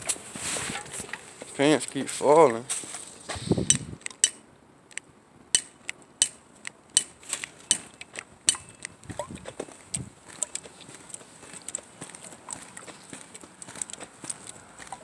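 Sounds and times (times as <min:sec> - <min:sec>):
footsteps on pavement: 0:07.2 - 0:15.0.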